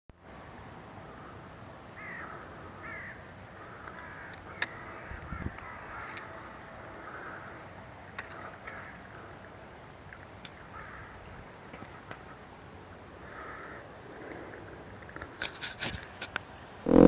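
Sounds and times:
faint bird calls: 2.0 - 9.5, 10.5 - 11.2, 13.2 - 14.9.

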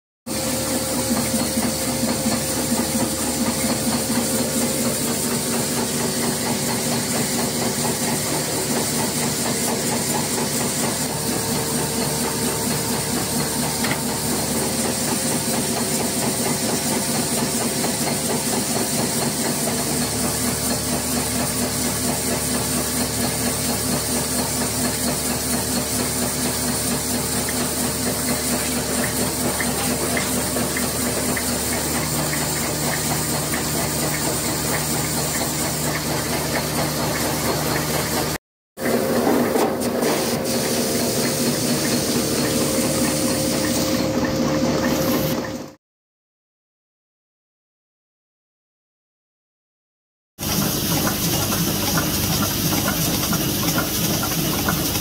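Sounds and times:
machine hum and hiss: 0.3 - 45.7, 50.4 - 55.0
machine clattering: 26.3 - 45.6.

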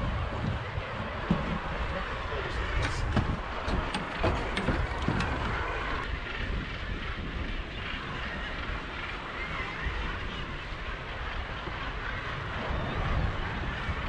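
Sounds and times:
sea rushing around boat: 0.0 - 6.2
wind on microphone: 0.0 - 14.0.

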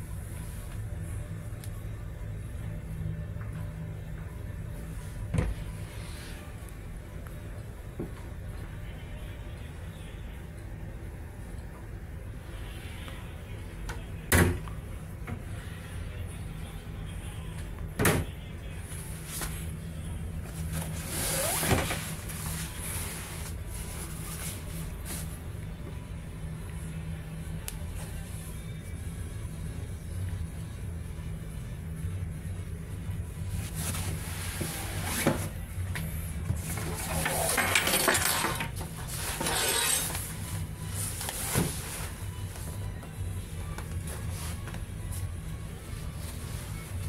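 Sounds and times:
steady low hum: 0.0 - 47.0
nylon bag rustling: 20.6 - 25.3
nylon bag rustling and scraping: 20.6 - 25.3, 33.6 - 35.6, 36.6 - 42.4.

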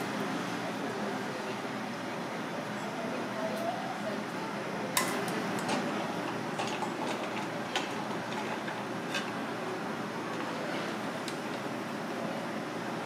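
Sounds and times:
steel bowls clinking: 6.6 - 9.4.

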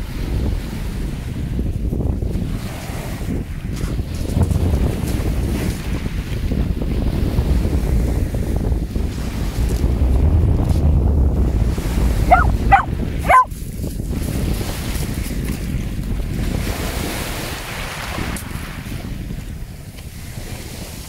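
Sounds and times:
waves washing in shallows: 0.0 - 21.0
wind buffeting microphone: 0.0 - 21.0
dog barking: 12.2 - 13.5.

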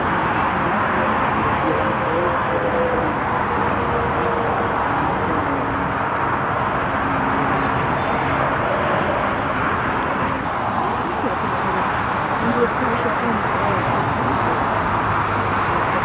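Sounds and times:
loud rushing engine noise: 0.0 - 16.0.

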